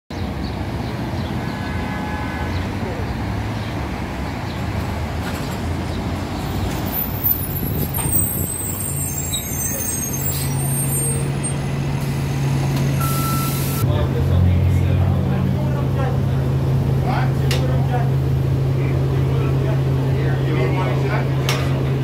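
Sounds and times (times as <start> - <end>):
bus drive humming: 0.1 - 22.0
brief tone: 13.0 - 13.8.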